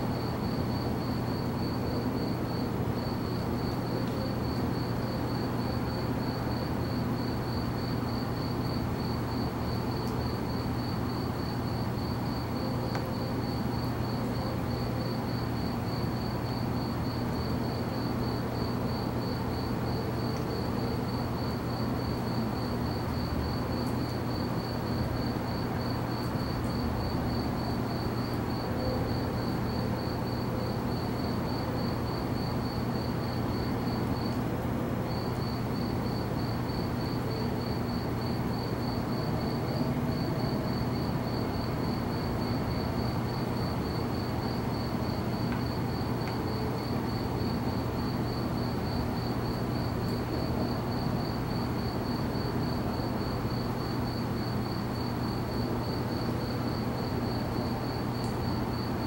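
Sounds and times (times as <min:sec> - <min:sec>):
cricket chirping: 0:00.0 - 0:59.0.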